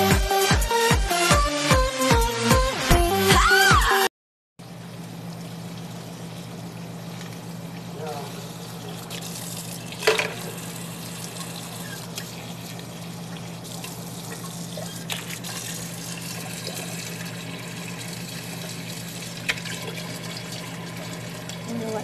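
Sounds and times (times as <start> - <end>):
water running into metal pot: 8.9 - 22.0.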